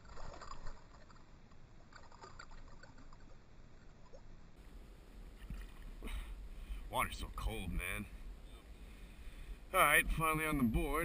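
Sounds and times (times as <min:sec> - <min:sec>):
fish splashing in water: 0:00.0 - 0:03.4.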